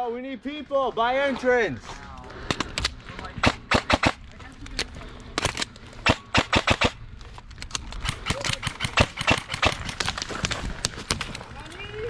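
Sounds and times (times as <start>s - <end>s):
airsoft guns firing: 3.4s - 4.2s, 5.4s - 7.0s, 8.0s - 10.3s.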